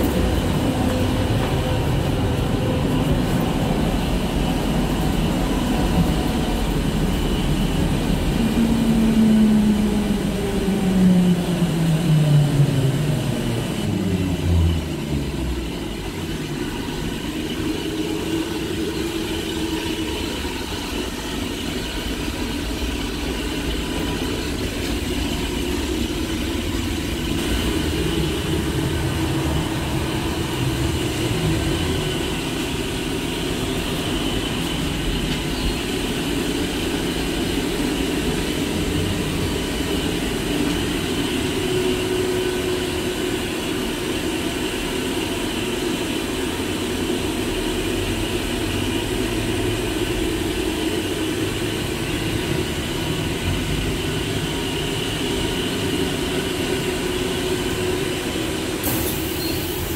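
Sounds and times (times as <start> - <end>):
trolleybus low rumble: 0.0 - 59.9.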